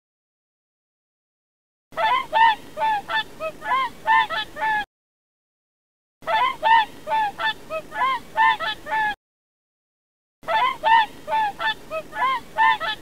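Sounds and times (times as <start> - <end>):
swans honking: 6.3 - 9.1, 10.5 - 13.0.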